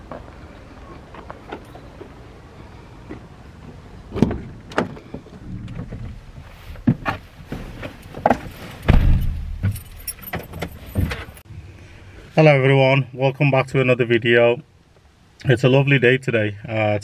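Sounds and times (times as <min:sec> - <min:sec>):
heavy thump: 0:04.1 - 0:11.3
van door opening: 0:04.1 - 0:11.4
keys jingling: 0:08.7 - 0:11.4.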